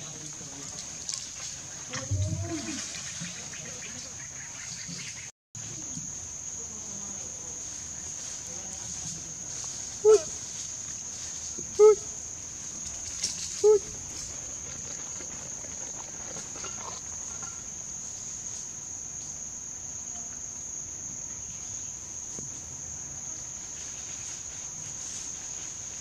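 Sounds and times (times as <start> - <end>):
insects droning: 0.0 - 26.0.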